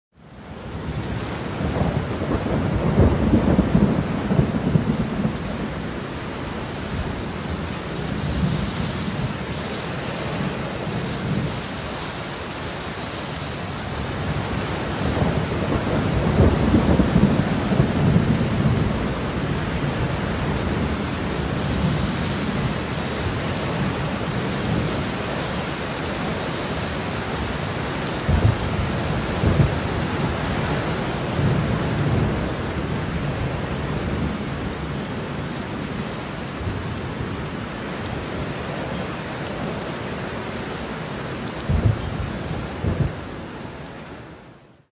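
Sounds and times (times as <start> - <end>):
steady rain: 0.1 - 44.9
thunder rolling: 14.2 - 25.2, 27.3 - 33.5, 41.6 - 43.2.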